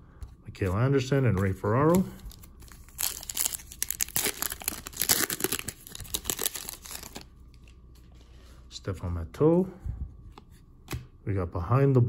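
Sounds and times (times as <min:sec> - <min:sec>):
plastic wrapper tearing and crinkling: 0:01.8 - 0:07.7.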